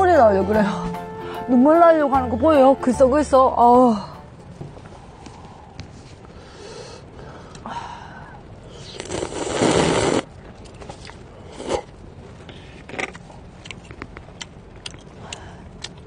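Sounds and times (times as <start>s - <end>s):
slurping noodles: 8.8s - 10.3s, 11.4s - 11.9s.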